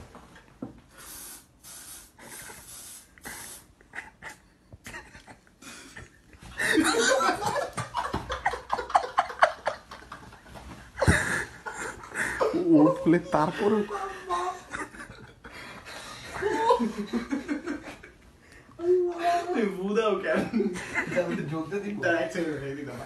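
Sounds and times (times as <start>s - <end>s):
short hisses: 1.0s - 3.7s
suppressed laughter: 3.3s - 18.2s.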